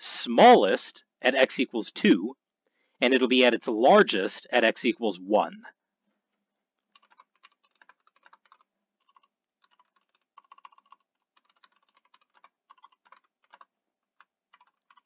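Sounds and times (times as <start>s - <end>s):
faint keyboard typing: 6.8s - 15.0s.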